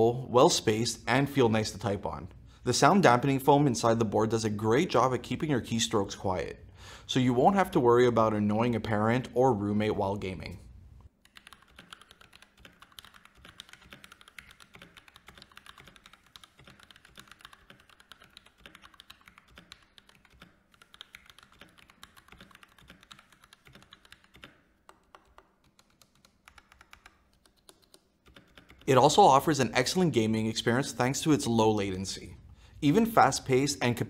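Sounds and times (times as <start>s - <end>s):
soft mechanical keyboard typing: 11.2s - 29.2s.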